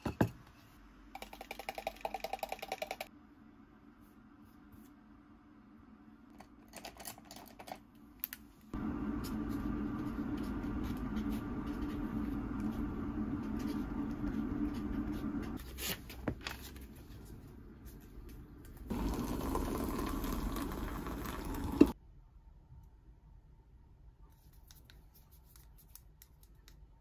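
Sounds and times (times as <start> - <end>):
appliance humming: 8.8 - 15.6, 18.6 - 22.0.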